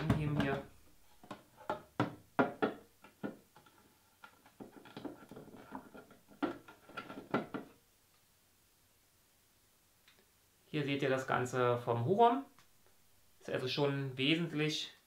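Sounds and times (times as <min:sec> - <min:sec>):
hard plastic parts clicking and knocking: 0:00.0 - 0:07.8.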